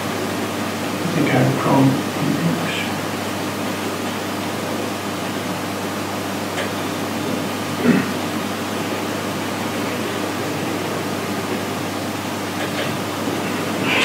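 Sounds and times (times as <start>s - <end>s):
even hiss: 13.7s - 14.0s.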